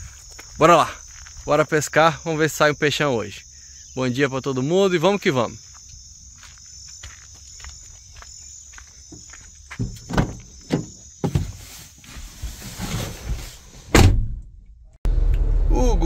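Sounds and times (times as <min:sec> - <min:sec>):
crickets chirping: 0:00.0 - 0:13.8
knocks and rustling of movement: 0:08.8 - 0:14.4
loud thump: 0:09.8 - 0:11.6, 0:13.9 - 0:14.6.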